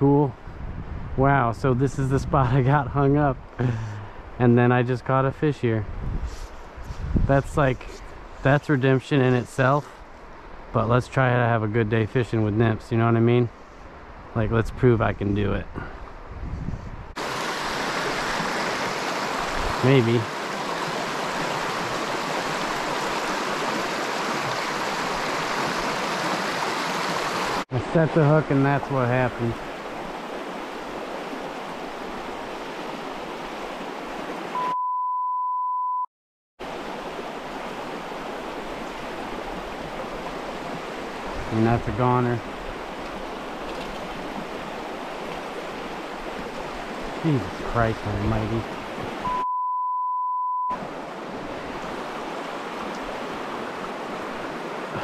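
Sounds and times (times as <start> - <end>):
creek rushing over stones: 17.1 - 34.6, 36.6 - 49.3, 50.7 - 55.0
stream running over rocks: 17.2 - 34.6, 36.6 - 49.3, 50.7 - 55.0
censor bleep: 34.6 - 36.1, 49.2 - 50.8.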